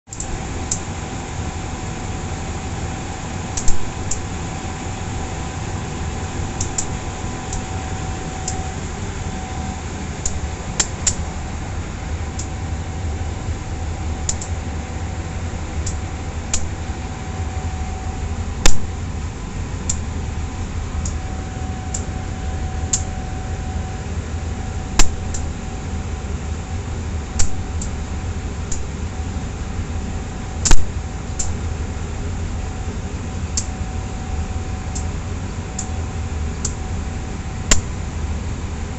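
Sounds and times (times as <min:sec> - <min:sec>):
diesel locomotive rumble: 0:00.1 - 0:38.9
sharp metallic clicks: 0:03.6 - 0:04.3, 0:06.6 - 0:07.7, 0:08.4 - 0:08.7, 0:10.2 - 0:11.2, 0:14.2 - 0:14.6, 0:15.8 - 0:16.8, 0:18.6 - 0:18.9, 0:19.8 - 0:20.0, 0:25.0 - 0:25.5, 0:27.4 - 0:28.0, 0:28.7 - 0:28.9, 0:30.6 - 0:31.6.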